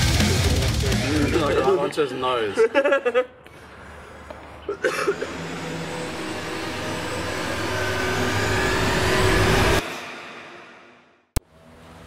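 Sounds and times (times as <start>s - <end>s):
rushing noise: 5.1s - 11.2s.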